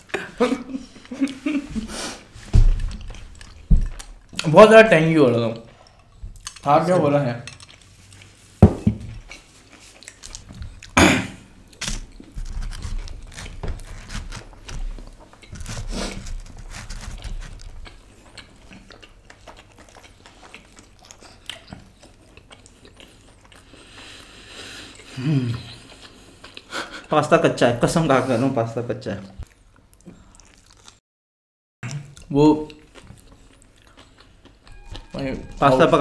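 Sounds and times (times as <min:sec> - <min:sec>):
people chewing: 0:00.0 - 0:27.3, 0:29.2 - 0:31.0, 0:31.8 - 0:36.0
person humming: 0:25.2 - 0:25.7.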